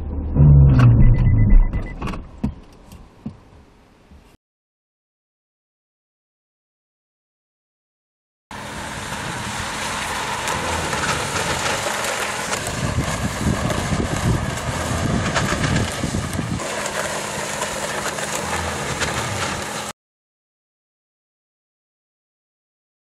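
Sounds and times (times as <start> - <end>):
car engine and tyre noise: 8.5 - 19.9.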